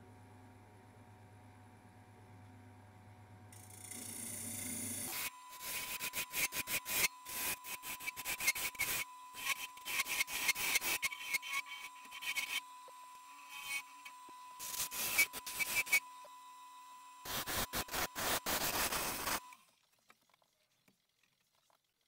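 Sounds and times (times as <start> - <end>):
wood lathe turning: 3.6 - 16.2
turning tool scraping wood: 5.1 - 12.8, 13.4 - 16.1.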